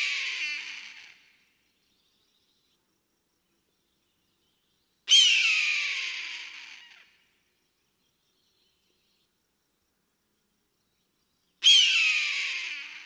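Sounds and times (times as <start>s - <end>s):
eagle screaming: 0.0s - 1.2s, 5.1s - 7.1s, 11.6s - 13.0s.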